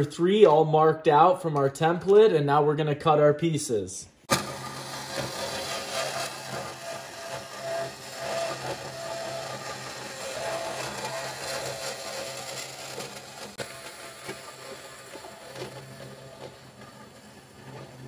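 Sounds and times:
bandsaw cutting steel tube: 0:04.3 - 0:18.0.

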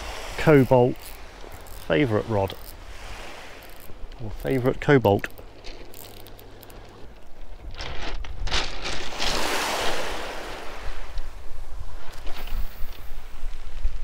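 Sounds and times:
waves washing onto shingle: 0:00.0 - 0:06.7, 0:08.5 - 0:13.6
wind on microphone: 0:05.9 - 0:14.0.

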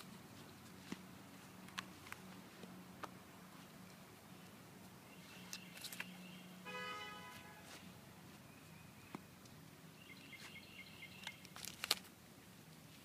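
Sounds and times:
bird chirping: 0:04.3 - 0:07.2, 0:08.3 - 0:11.6.

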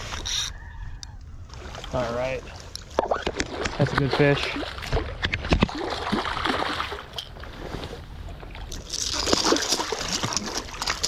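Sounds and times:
fish thrashing and splashing water: 0:02.9 - 0:07.9, 0:08.5 - 0:11.0.

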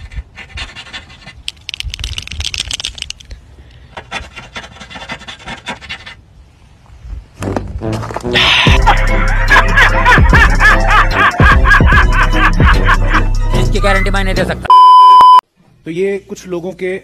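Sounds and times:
paint pen scraping paintwork: 0:00.0 - 0:02.0, 0:04.0 - 0:06.2
loud background music: 0:08.4 - 0:14.5.

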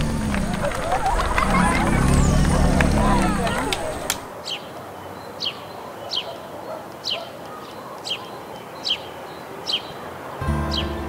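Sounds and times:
bird calling: 0:00.0 - 0:04.7
faint outdoor background noise: 0:00.0 - 0:11.0.

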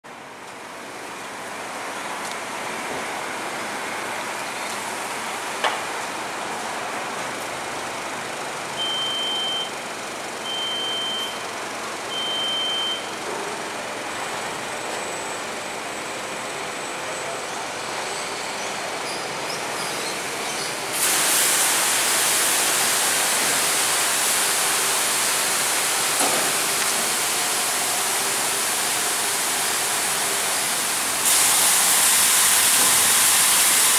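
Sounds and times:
car wash machine hum: 0:00.1 - 0:33.9
short beeps: 0:08.8 - 0:09.8, 0:10.4 - 0:11.5, 0:12.1 - 0:13.1
water jets spraying: 0:20.9 - 0:33.9.

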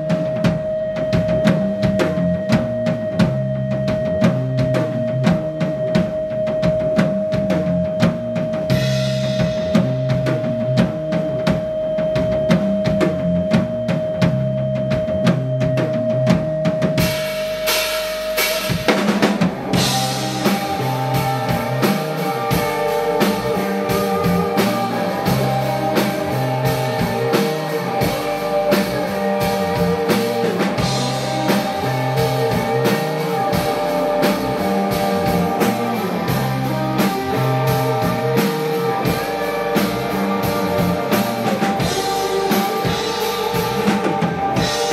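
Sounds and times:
drum kit: 0:00.0 - 0:44.9
repeating bass line: 0:18.4 - 0:44.9.

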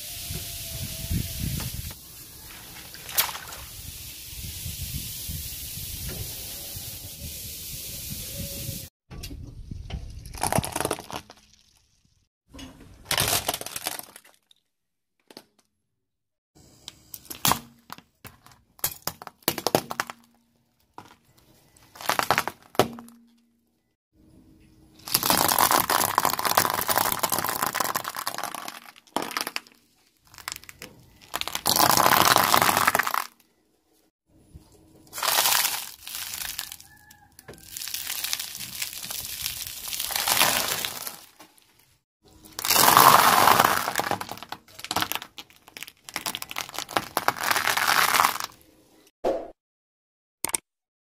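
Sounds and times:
tyre crushing dry pasta and snacks: 0:17.2 - 0:23.2, 0:25.0 - 0:33.6, 0:35.1 - 0:37.0, 0:37.6 - 0:48.6
foil trays crumpling: 0:35.1 - 0:36.8, 0:37.6 - 0:41.7, 0:42.6 - 0:48.6.

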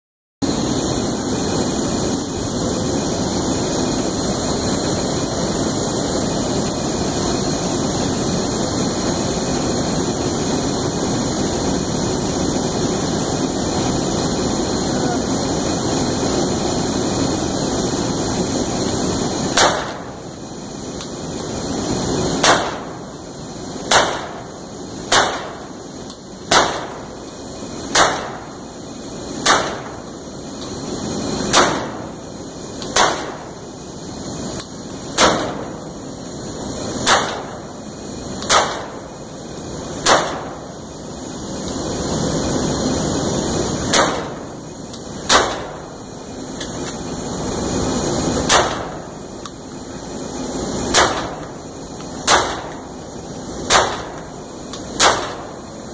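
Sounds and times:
steady rushing noise: 0:00.4 - 0:55.9
shotgun bangs: 0:19.5 - 0:20.1, 0:22.4 - 0:23.0, 0:23.9 - 0:24.5, 0:25.1 - 0:25.6, 0:26.5 - 0:27.0, 0:27.9 - 0:28.5, 0:29.4 - 0:30.0, 0:31.5 - 0:32.1, 0:33.0 - 0:33.5, 0:35.2 - 0:35.7, 0:37.0 - 0:37.6, 0:38.5 - 0:39.0, 0:40.0 - 0:40.6, 0:43.9 - 0:44.4, 0:45.3 - 0:45.8, 0:48.5 - 0:49.0, 0:50.9 - 0:51.4, 0:52.3 - 0:52.8, 0:53.7 - 0:54.2, 0:55.0 - 0:55.5.

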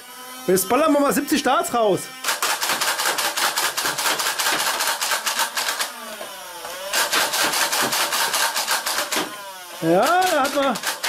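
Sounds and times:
toy blaster firing darts: 0:02.2 - 0:11.0.

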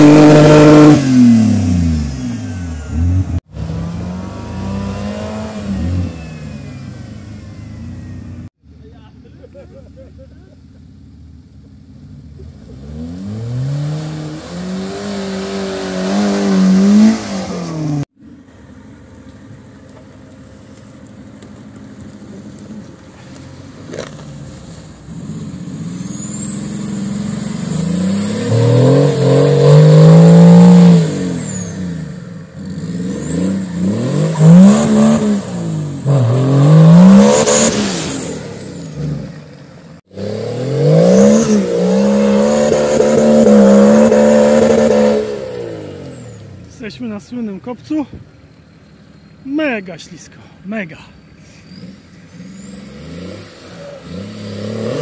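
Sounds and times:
off-road engines revving: 0:00.0 - 0:18.2, 0:21.6 - 0:55.0.

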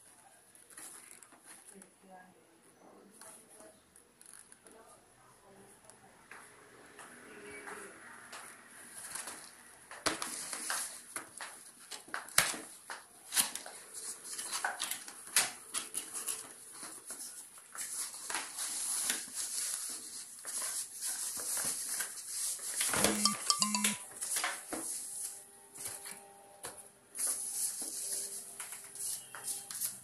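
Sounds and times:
cardboard and plastic crinkling: 0:00.6 - 0:01.8.

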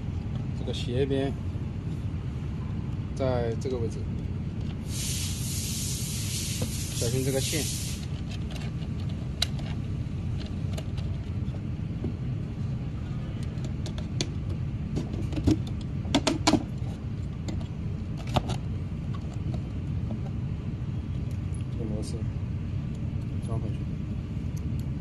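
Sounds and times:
low background hum: 0:00.0 - 0:25.0
clicks and knocks of handling: 0:08.2 - 0:12.2, 0:13.4 - 0:20.4.

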